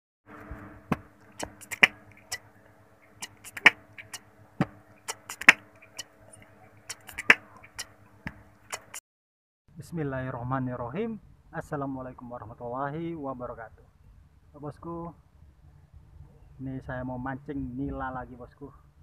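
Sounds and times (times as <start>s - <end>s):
steady low hum: 0.3s - 9.0s.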